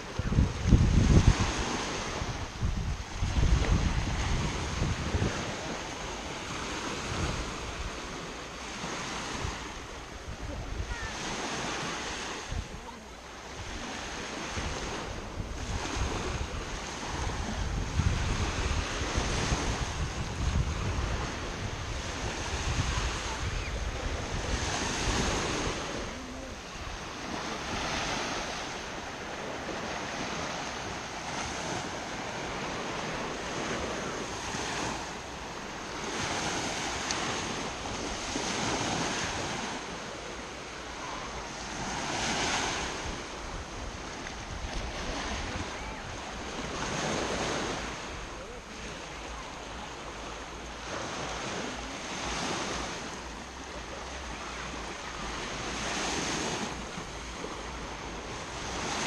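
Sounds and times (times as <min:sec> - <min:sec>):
wind buffeting microphone: 0:00.0 - 0:12.9, 0:13.5 - 0:49.9
small waves breaking on shore: 0:00.0 - 0:59.0.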